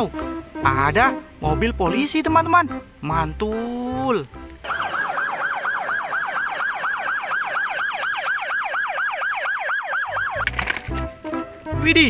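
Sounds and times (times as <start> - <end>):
police siren yelping: 4.6 - 10.6.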